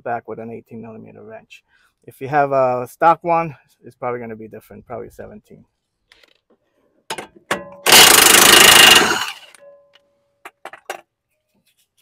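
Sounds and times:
impact wrench hammering: 7.1s - 9.6s.

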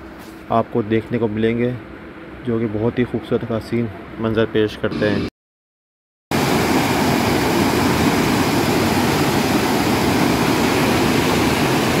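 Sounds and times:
stream rushing over boulders: 6.4s - 12.0s.

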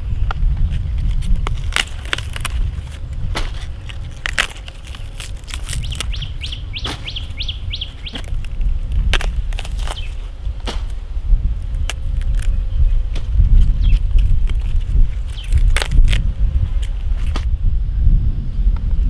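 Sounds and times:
leafy stalks clicking and cracking: 0.3s - 17.5s
small bird chirping: 4.6s - 8.5s, 9.3s - 10.3s, 11.8s - 15.8s.

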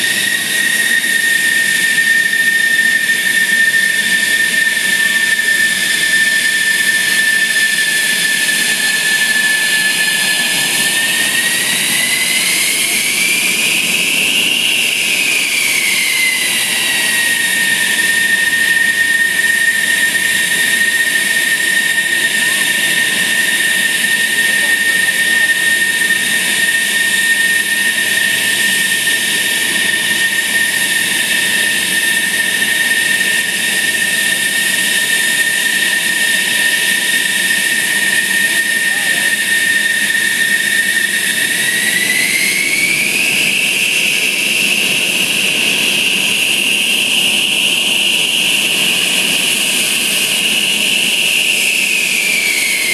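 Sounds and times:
jet engine turbine whine: 0.0s - 52.9s
rushing jet exhaust: 0.0s - 52.9s.

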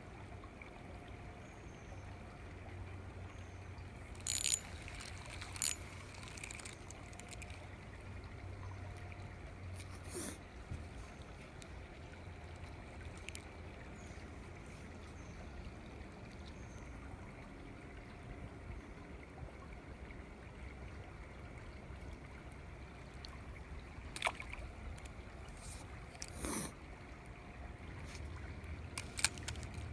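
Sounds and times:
creek water trickling: 0.0s - 29.9s
fishing rod clicks: 4.1s - 7.7s, 12.6s - 13.5s, 24.2s - 26.4s, 28.9s - 29.9s.

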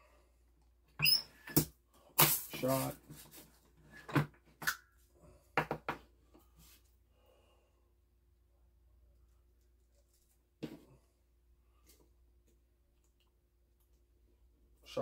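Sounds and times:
soft handling noise: 9.1s - 11.1s.

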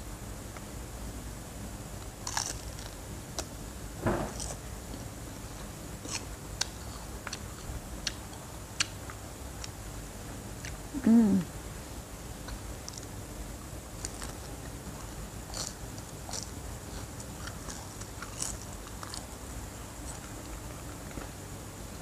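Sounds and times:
crunching bites of seaweed: 2.0s - 3.5s, 15.5s - 19.3s.

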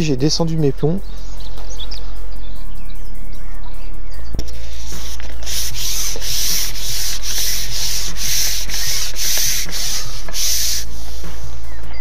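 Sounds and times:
rhythmic rubbing: 3.9s - 12.0s.

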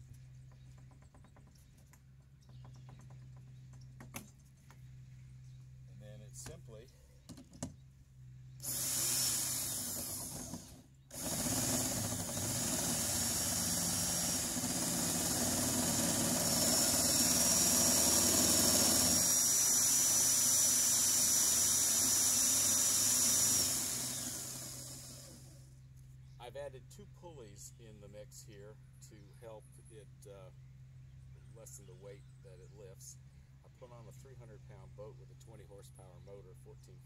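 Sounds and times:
electric drill running winch: 8.6s - 25.7s.

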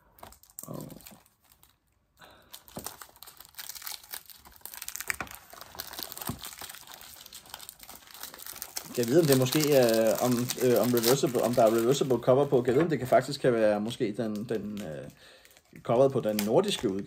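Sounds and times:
plastic wrapping crackling: 0.0s - 17.0s.

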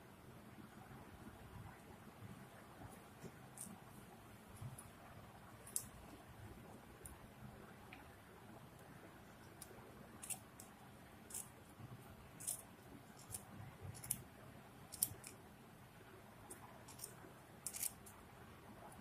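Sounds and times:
scissors snipping yarn: 9.4s - 10.7s, 11.3s - 11.5s, 12.4s - 14.3s, 14.9s - 15.4s, 16.5s - 18.2s.

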